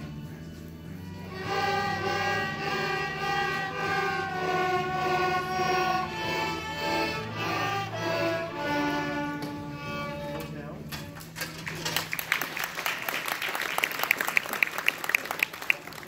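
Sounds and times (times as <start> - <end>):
string ensemble playing slow notes: 0.0 - 11.0.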